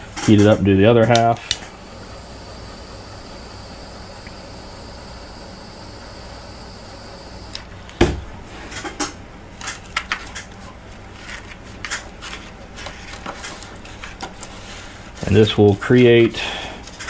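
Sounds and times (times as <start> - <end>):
torch hissing: 1.6 - 7.7.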